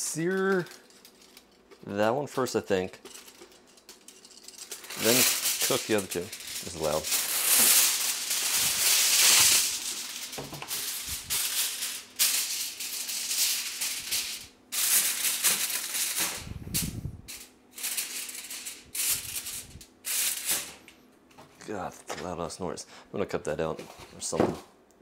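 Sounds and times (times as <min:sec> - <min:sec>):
hot oil crackling in frying pan: 0:04.7 - 0:16.4.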